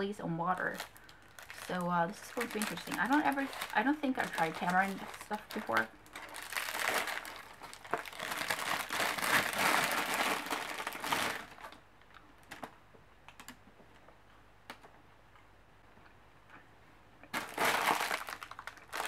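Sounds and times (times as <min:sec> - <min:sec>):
candy wrapper crinkling: 0:00.5 - 0:12.7, 0:17.3 - 0:19.0.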